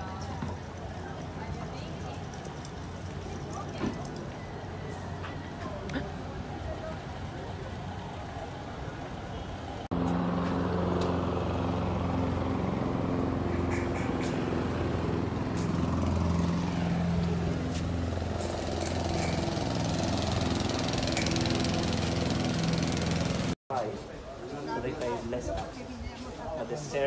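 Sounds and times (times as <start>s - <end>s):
engine running: 9.9s - 23.6s.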